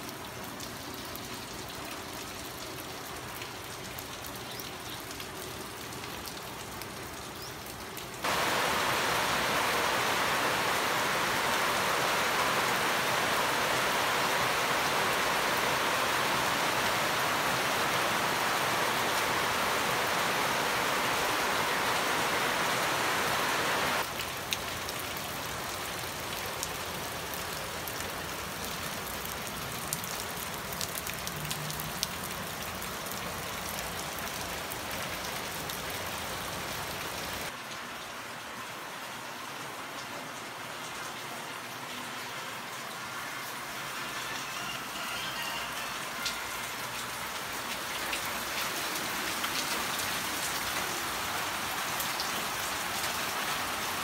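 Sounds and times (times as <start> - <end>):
heavy rain falling: 0.0 - 54.0.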